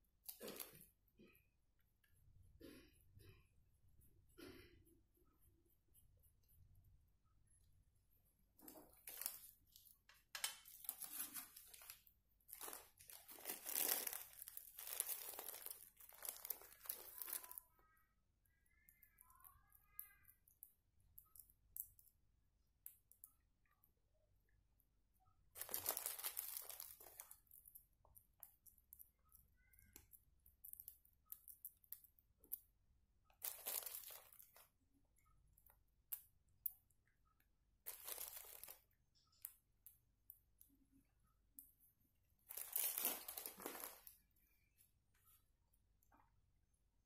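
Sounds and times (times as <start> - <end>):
plastic crinkling: 8.6 - 17.6, 25.6 - 27.8, 33.4 - 34.7, 37.8 - 39.5, 42.5 - 44.2.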